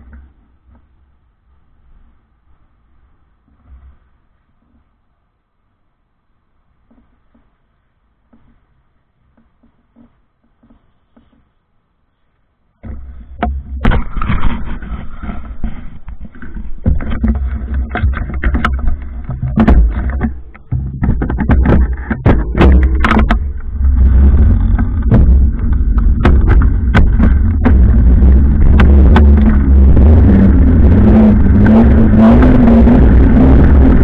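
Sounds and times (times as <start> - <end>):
bike clicks and knocks: 12.8 - 29.7
wind buffeting microphone: 13.0 - 34.0.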